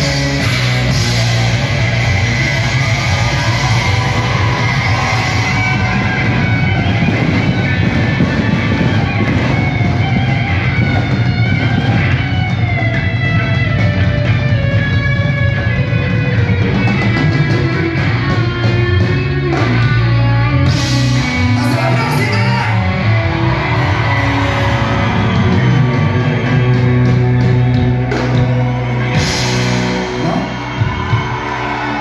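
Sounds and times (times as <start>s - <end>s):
live rock band playing: 0.0s - 32.0s.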